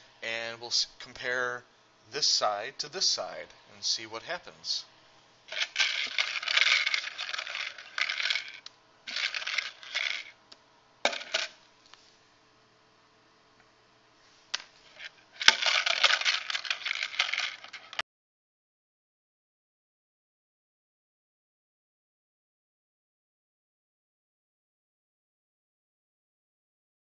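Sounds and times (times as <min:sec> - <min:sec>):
plastic cubes rattling in tub: 0:05.5 - 0:10.3, 0:11.1 - 0:11.6, 0:15.0 - 0:18.0
cubes clicking onto desk: 0:15.4 - 0:18.0.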